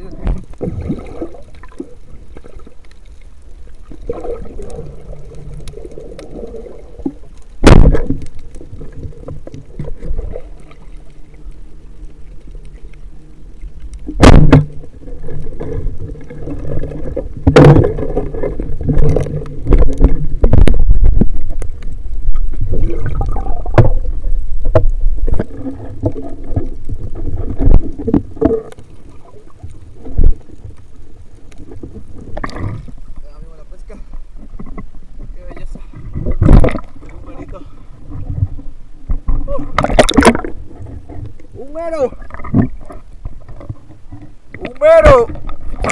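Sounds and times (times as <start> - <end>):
underwater rumbling and bubbling: 0.0 - 45.9
loud knocks and thuds: 7.6 - 8.2, 14.2 - 14.7.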